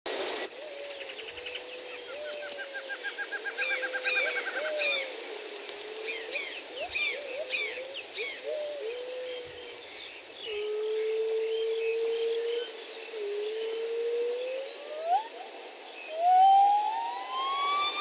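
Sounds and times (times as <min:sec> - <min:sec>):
steady background hiss: 0:00.1 - 0:18.0
low wavering bird call: 0:00.6 - 0:05.2, 0:05.8 - 0:09.8, 0:10.4 - 0:18.0.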